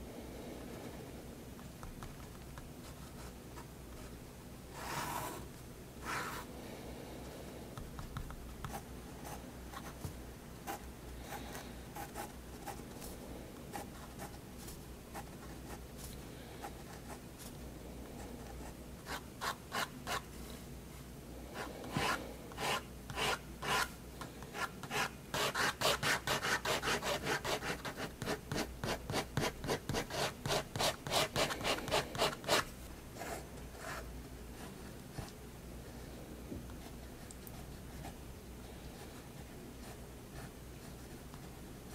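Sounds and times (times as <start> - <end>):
pen scratching on paper: 21.6 - 23.9, 24.6 - 32.6.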